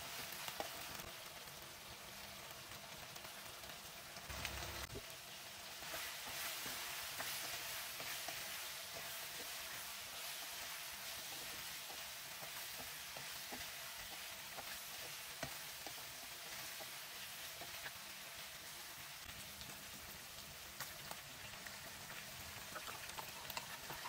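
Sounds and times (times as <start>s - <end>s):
meat sizzling in hot oil: 0.0s - 24.0s
wooden spatula scraping a pan: 5.8s - 17.9s.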